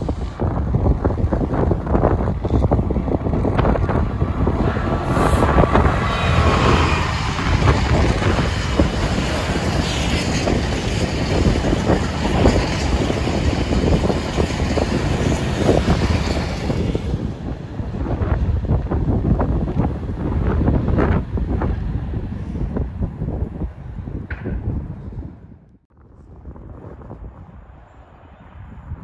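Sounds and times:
train wheels rumbling on rails: 0.0 - 22.8
diesel locomotive passing: 0.0 - 24.0.

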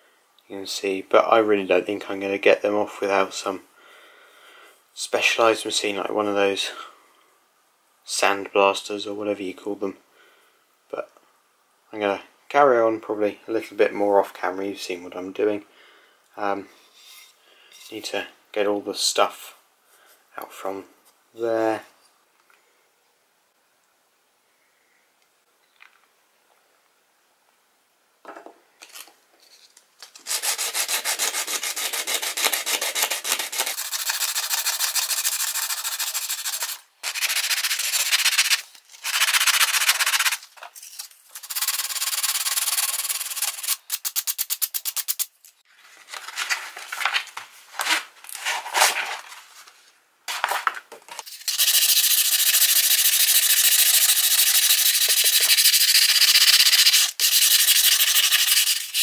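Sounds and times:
sandpaper scrubbing on metal: 30.2 - 40.4, 41.4 - 45.3, 51.2 - 59.0.

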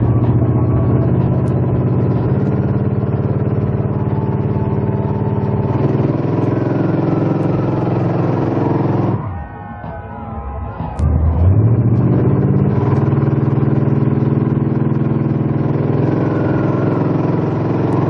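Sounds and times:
truck engines revving under load: 0.0 - 18.0.

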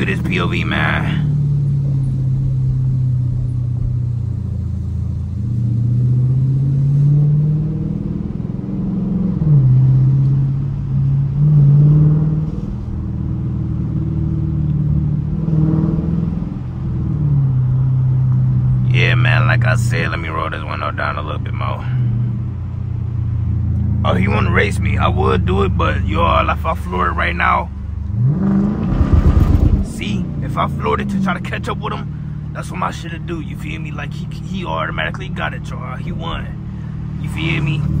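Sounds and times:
car exhaust revving from cabin: 28.0 - 31.2.

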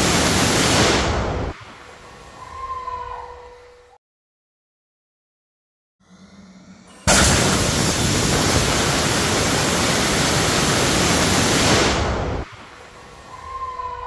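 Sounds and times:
rocket engine rushing roar: 6.9 - 12.8.

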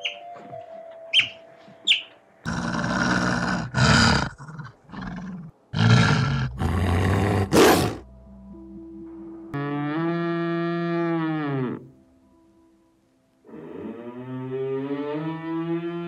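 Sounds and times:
otter chirps: 0.0 - 0.2, 1.1 - 2.1
wolf growling and snarling: 2.5 - 8.0.

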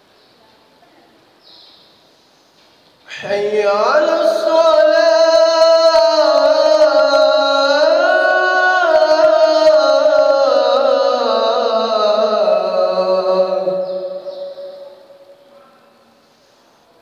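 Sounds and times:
man singing call to prayer: 3.1 - 15.4.

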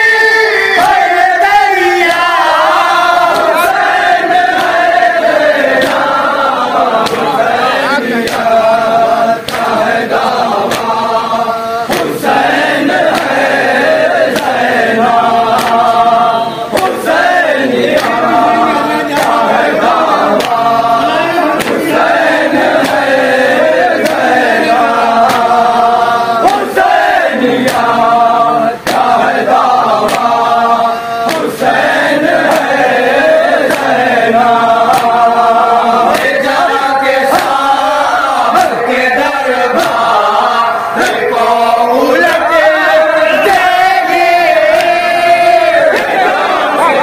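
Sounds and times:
men chanting in unison: 0.0 - 47.0
hands slapping chests: 3.2 - 7.6, 8.2 - 8.8, 9.4 - 11.0, 11.9 - 16.0, 16.7 - 18.4, 19.1 - 20.7, 21.6 - 25.6, 26.4 - 26.8, 27.6 - 28.0, 28.8 - 30.5, 31.2 - 34.1, 34.8 - 35.3, 36.0 - 38.8, 39.7 - 41.2, 44.7 - 45.0.

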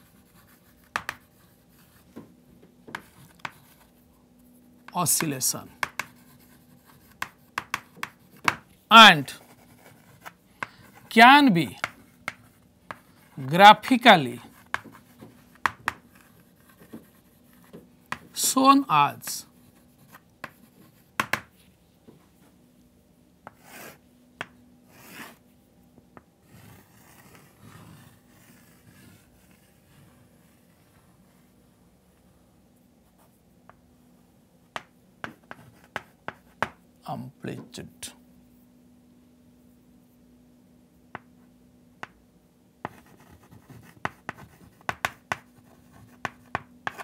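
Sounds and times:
chalk tapping on blackboard: 0.0 - 2.3, 2.9 - 3.9, 4.8 - 8.7, 9.4 - 11.0, 11.7 - 13.3, 14.5 - 18.4, 20.0 - 21.5, 23.4 - 25.4, 34.7 - 36.8, 41.1 - 41.4, 42.0 - 42.2, 42.8 - 47.0
faint steady hum: 0.0 - 47.0
chalk scraping on blackboard: 23.5 - 24.0, 24.9 - 25.4, 26.5 - 30.6, 42.9 - 47.0.

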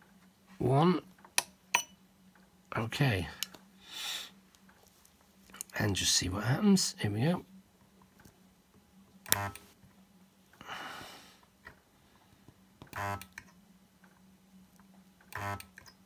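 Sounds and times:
faint steady hum: 0.0 - 16.0
spot welder pulse buzzing: 9.2 - 9.8, 12.9 - 13.4, 15.3 - 15.8.

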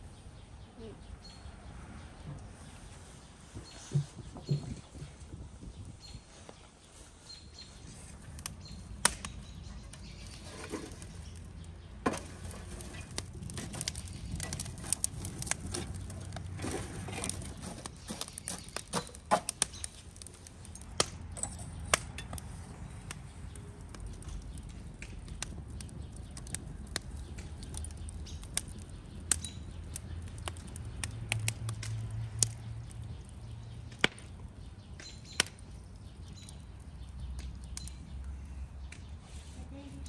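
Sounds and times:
burning embers crackling: 1.4 - 40.0
metal shovel raking embers: 7.3 - 22.9.

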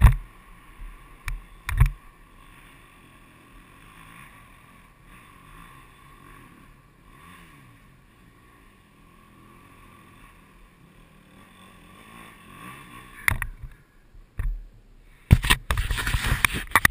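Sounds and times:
knocks and rustles on microphone: 0.0 - 0.3, 15.3 - 16.9
distant dirt bike engine revving: 0.0 - 16.9.

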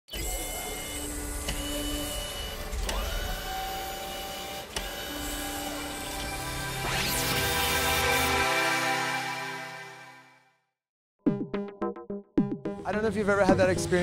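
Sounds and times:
whirring gears and small motor: 0.1 - 8.3
rising motor whine: 0.2 - 10.1.

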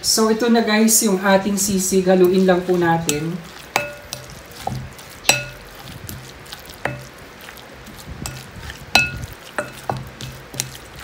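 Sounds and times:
wooden spatula stirring in glass bowl: 1.6 - 11.0
glass bowl clinking and ringing: 3.8 - 4.3, 5.3 - 5.7, 6.9 - 7.1, 9.0 - 10.0.

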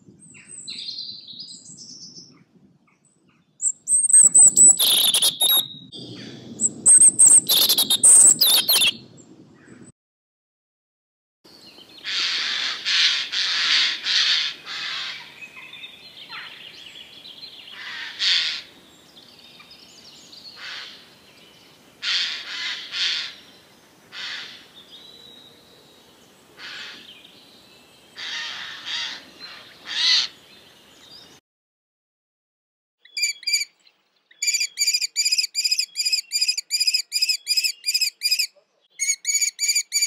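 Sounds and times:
jay screeching: 4.0 - 5.6, 6.6 - 9.0.

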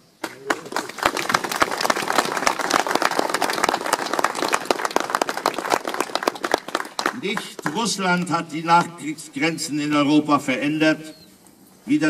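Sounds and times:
audience applauding: 0.2 - 8.3.

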